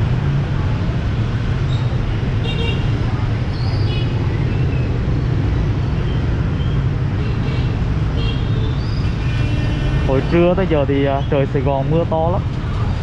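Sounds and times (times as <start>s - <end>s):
motorbike engines rumbling: 0.0s - 13.0s
street traffic: 0.0s - 13.0s.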